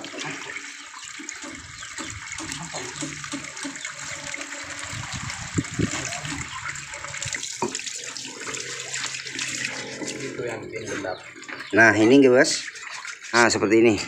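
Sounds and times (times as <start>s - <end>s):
running water splashing: 0.0s - 14.0s.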